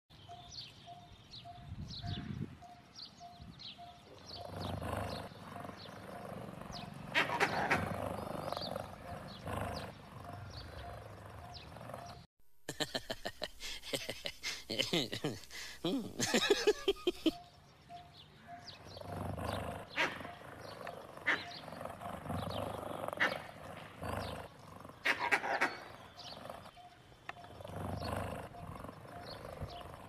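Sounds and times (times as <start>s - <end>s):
low growling: 4.2s - 12.3s, 18.8s - 25.2s, 25.8s - 26.8s, 27.4s - 30.0s.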